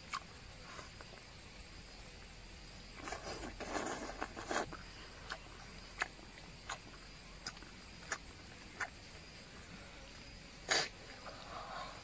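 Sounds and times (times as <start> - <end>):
chewing smacks: 3.0 - 9.0
wet mouth sounds: 10.7 - 10.9.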